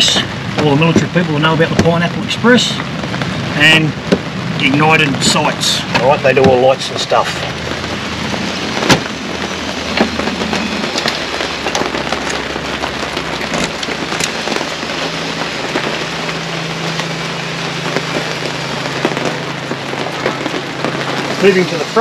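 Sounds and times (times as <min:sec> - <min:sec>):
steady rain falling: 0:00.0 - 0:22.0.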